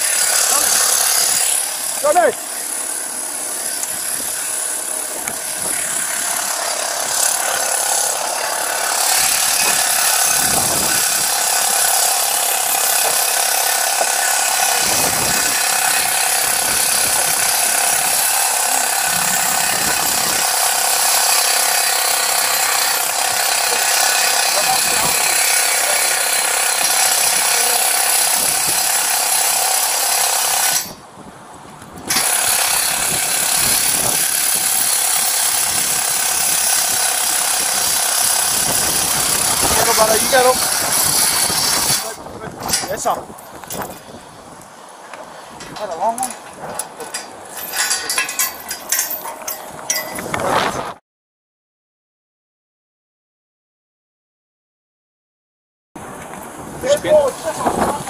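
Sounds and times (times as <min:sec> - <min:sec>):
wind hissing on microphone: 0:03.7 - 0:06.4, 0:09.1 - 0:11.9, 0:14.7 - 0:20.6, 0:24.6 - 0:25.4, 0:28.2 - 0:29.1, 0:30.6 - 0:47.6, 0:49.7 - 0:51.0, 0:56.0 - 0:58.0.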